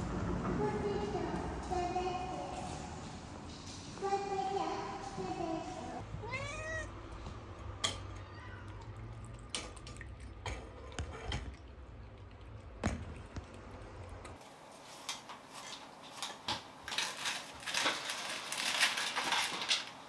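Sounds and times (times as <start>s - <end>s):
low steady hum: 0.0s - 14.4s
cat meowing: 6.1s - 7.0s, 8.1s - 9.0s.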